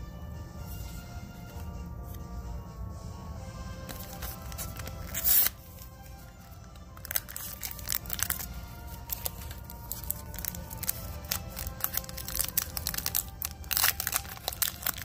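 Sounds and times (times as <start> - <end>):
background music: 0.0 - 15.0
packaging crinkling: 3.9 - 15.0
plastic packaging tearing: 3.9 - 15.0.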